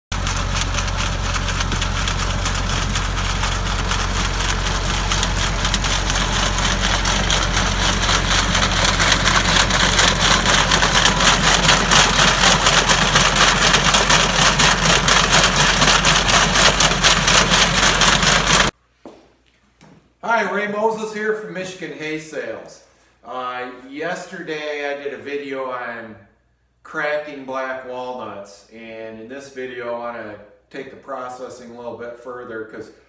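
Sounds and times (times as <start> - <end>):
tractor diesel engine running: 0.1 - 18.7.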